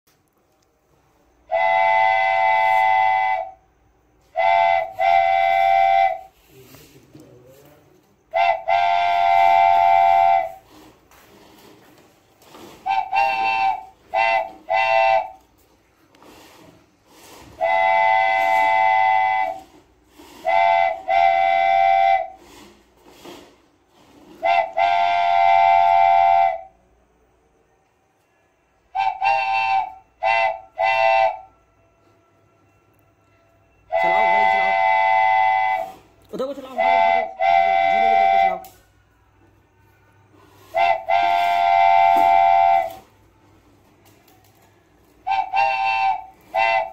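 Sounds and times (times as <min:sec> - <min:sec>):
horn blasts and toots: 0:01.5 - 0:03.6, 0:04.3 - 0:06.3, 0:08.3 - 0:10.7, 0:12.8 - 0:15.4, 0:17.6 - 0:19.8, 0:20.4 - 0:22.4, 0:24.4 - 0:26.7, 0:28.9 - 0:32.1, 0:33.3 - 0:38.8, 0:40.6 - 0:43.1, 0:45.2 - 0:46.9.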